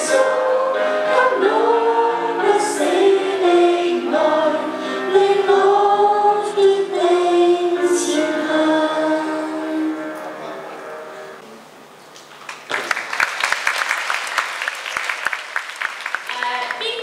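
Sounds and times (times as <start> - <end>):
girls singing into microphones: 0.0 - 10.1.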